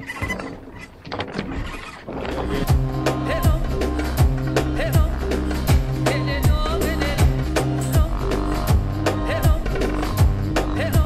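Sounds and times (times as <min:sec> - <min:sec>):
bass line: 0:02.5 - 0:11.0.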